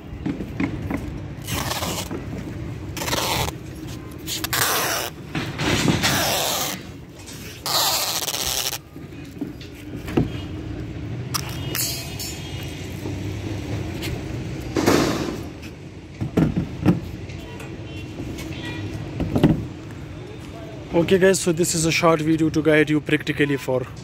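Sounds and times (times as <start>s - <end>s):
cloth rubbing over tape: 1.4s - 2.3s, 2.9s - 5.2s, 6.0s - 8.9s.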